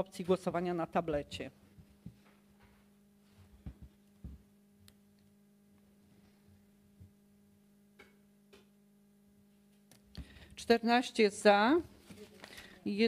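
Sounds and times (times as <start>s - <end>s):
low electrical hum: 0.0s - 13.0s
faint knocks and taps: 3.5s - 4.5s.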